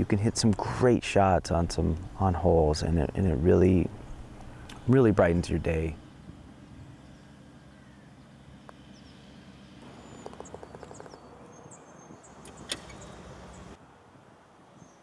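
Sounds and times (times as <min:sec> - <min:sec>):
low steady hum: 0:00.0 - 0:14.5
faint bird chirps: 0:06.6 - 0:13.8
sharp click: 0:12.4 - 0:13.1.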